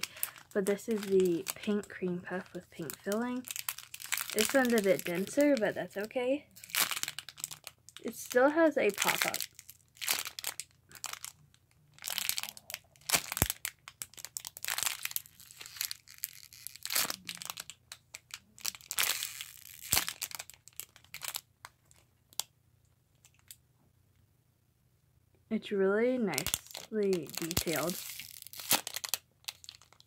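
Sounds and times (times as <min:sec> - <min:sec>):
plastic bag crinkling: 0:00.0 - 0:22.5, 0:26.3 - 0:30.0.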